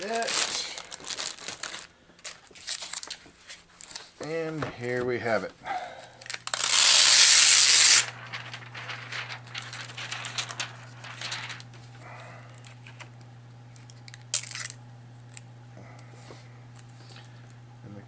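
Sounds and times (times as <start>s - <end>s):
plastic wrap rustling: 0.0s - 5.4s, 6.2s - 13.0s.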